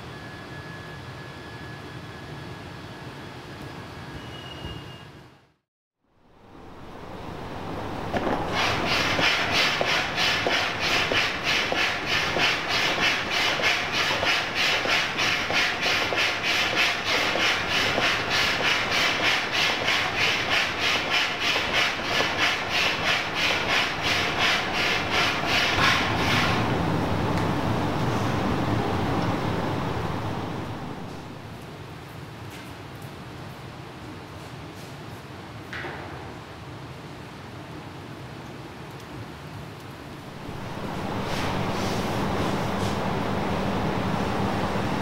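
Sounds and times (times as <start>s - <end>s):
hand air pump hissing: 8.2s - 26.6s.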